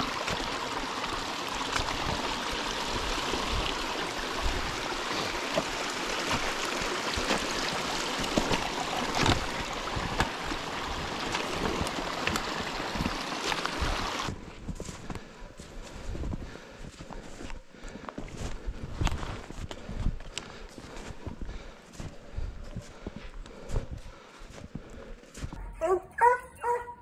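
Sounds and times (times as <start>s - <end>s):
creek water rushing: 0.0s - 14.4s.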